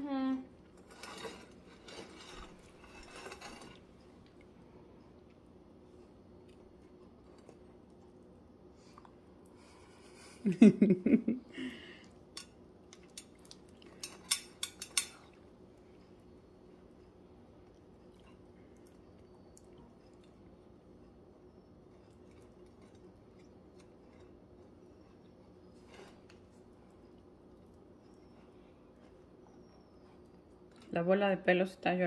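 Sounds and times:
faint steady hum: 0.0s - 32.0s
kitchenware clinking: 12.4s - 15.4s.

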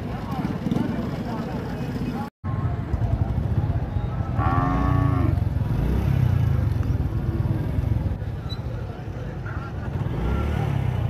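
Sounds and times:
market bustle: 0.0s - 11.0s
motorcycle engines rumbling: 0.0s - 11.0s
cattle mooing: 4.3s - 5.4s.

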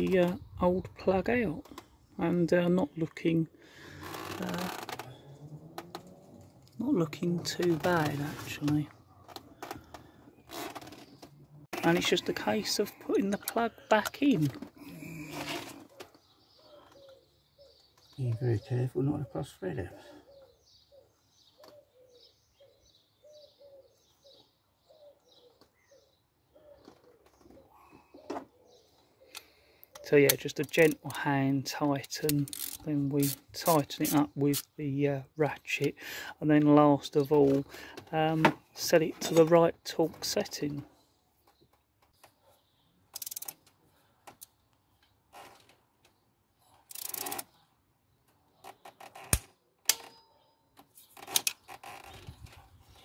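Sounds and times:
faint bird calls: 14.8s - 30.1s
ratchet wrench clicking: 32.4s - 33.4s, 43.1s - 43.6s, 46.9s - 47.4s.

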